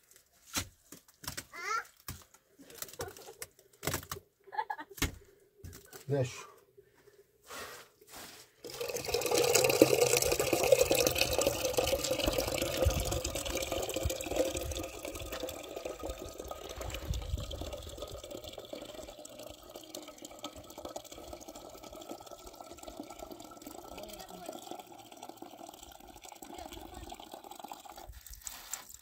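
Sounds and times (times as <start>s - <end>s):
water running and splashing: 8.6s - 29.0s.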